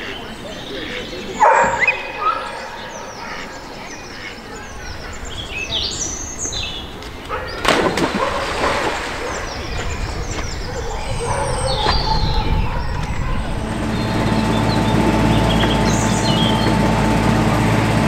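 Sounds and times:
small birds chirping: 0.0 - 17.0
outdoor ambience: 0.0 - 18.0
dog splashing into water: 7.5 - 10.6.

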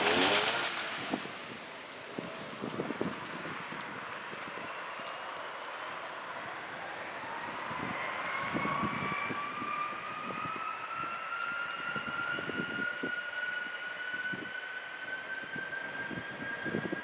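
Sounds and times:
jet engines whining: 6.4 - 17.0.

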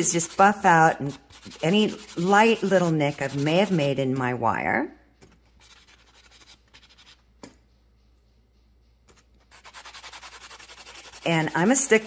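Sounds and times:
sanding block rubbing on wire: 0.0 - 4.2, 9.5 - 12.0.

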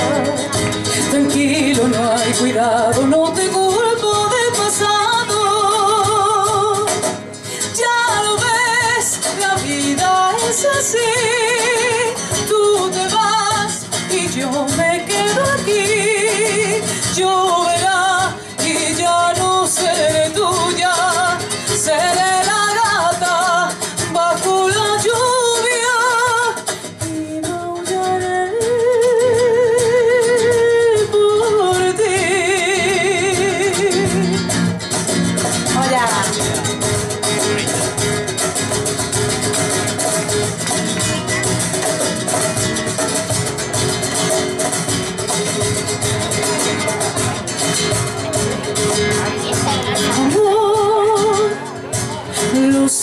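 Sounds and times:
woman singing through speakers: 0.0 - 34.6, 49.8 - 53.0
instrumental accompaniment: 0.0 - 53.0.

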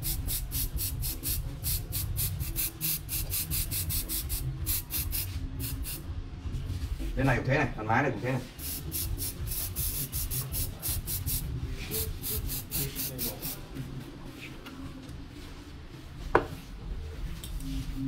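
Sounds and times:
aerosol spray hissing: 0.0 - 6.0, 8.6 - 13.6.

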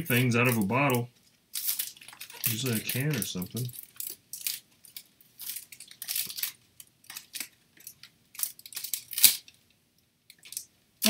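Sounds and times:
packaging crinkling and rustling: 0.0 - 10.7
packaging sharp snap: 8.4 - 9.5.

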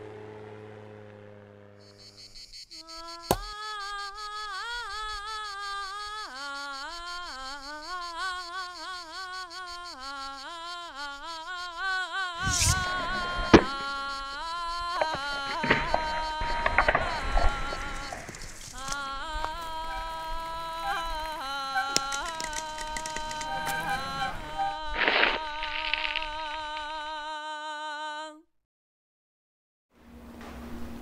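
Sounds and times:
axe striking wood: 3.3 - 3.5.

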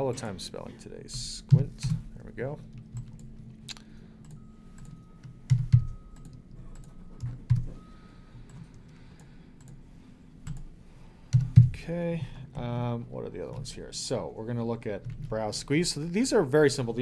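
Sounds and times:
computer keyboard and mouse clicks: 2.7 - 7.8, 10.4 - 10.7.

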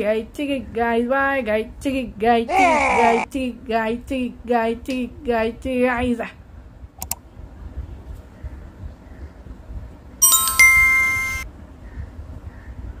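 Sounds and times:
bright chime strikes: 10.2 - 11.4.

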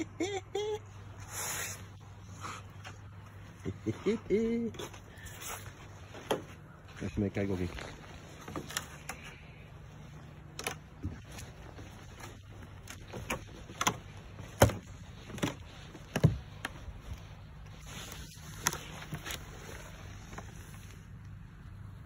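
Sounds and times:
footsteps on wooden boards: 4.7 - 7.0, 10.5 - 17.8.

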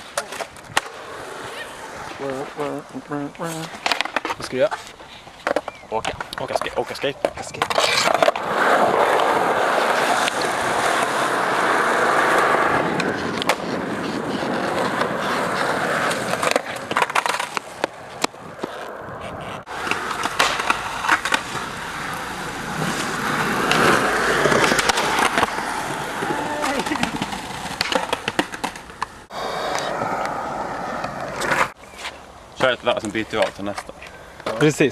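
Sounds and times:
skateboard grinding along ledge: 0.0 - 2.6, 6.6 - 31.8
skateboard wheels rolling on concrete: 0.0 - 34.9
skateboard tail clacks: 3.8 - 34.7.

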